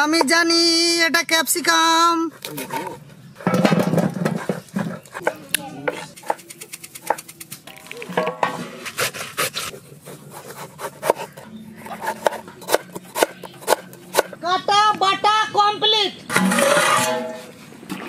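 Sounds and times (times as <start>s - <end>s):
knife chopping on wooden board: 4.3s - 7.3s, 10.3s - 14.4s.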